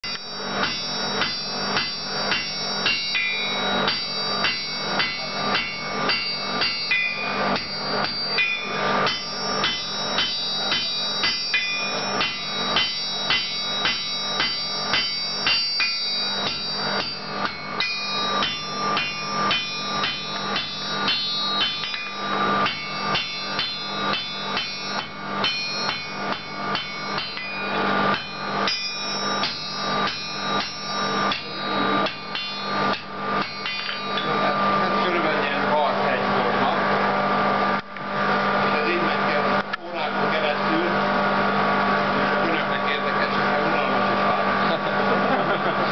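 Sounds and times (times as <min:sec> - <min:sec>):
hammer striking steel on anvil: 0:00.0 - 0:36.0.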